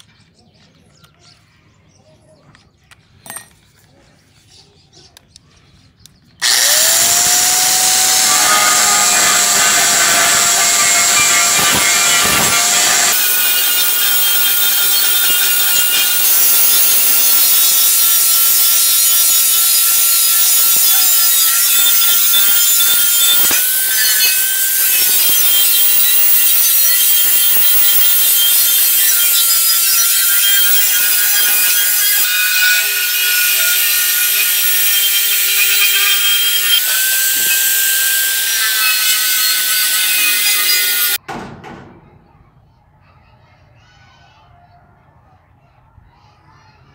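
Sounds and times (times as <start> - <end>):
angle grinder grinding metal: 6.4 - 41.2.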